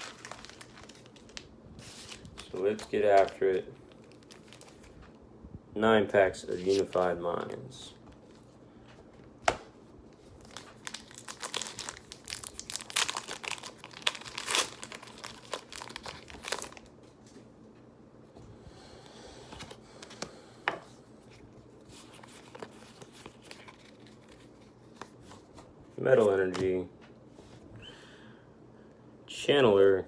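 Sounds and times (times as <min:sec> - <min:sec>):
foil wrapper crinkling and tearing: 0:00.0 - 0:05.0, 0:10.4 - 0:16.9.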